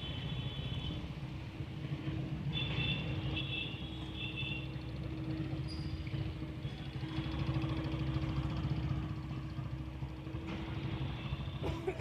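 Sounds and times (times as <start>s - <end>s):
small motorcycle engine running: 4.5s - 11.6s.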